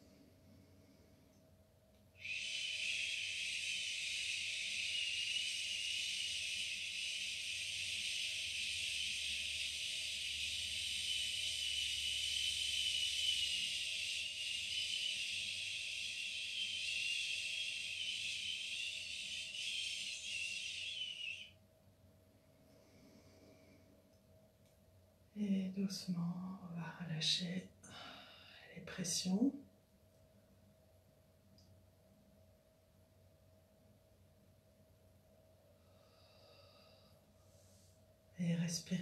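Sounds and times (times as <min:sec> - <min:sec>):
woman breathing out hissing shhh: 0:02.2 - 0:21.4, 0:35.8 - 0:37.9.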